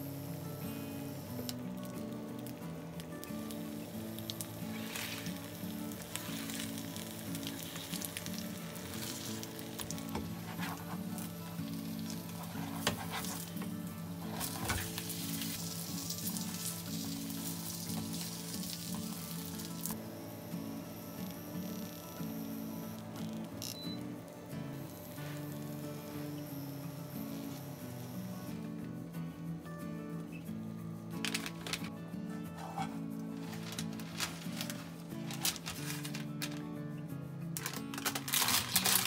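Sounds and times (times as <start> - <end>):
food sizzling in frying pan: 3.1 - 20.0
utensil scraping pan: 32.5 - 34.7.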